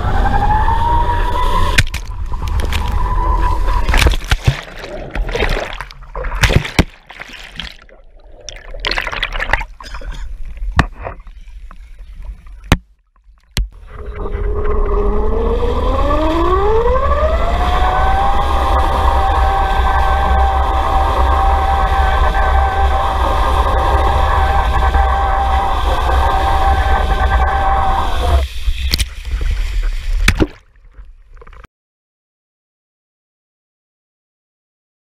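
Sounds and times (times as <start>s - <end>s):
rising whine: 0.0s - 6.9s, 13.8s - 29.9s
rush of water and wind: 0.0s - 12.7s
water sloshing and gurgling: 1.6s - 14.7s, 18.1s - 31.7s
heavy water splashing: 1.7s - 11.4s, 19.7s - 31.6s
camera knocking on water: 3.9s - 7.8s, 10.7s - 11.2s, 30.2s - 30.6s.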